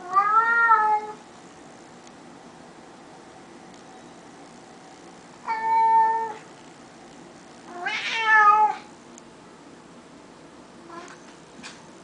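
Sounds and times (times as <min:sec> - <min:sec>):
cat meowing: 0:00.0 - 0:01.2, 0:05.5 - 0:06.4, 0:07.7 - 0:08.9, 0:10.9 - 0:11.2.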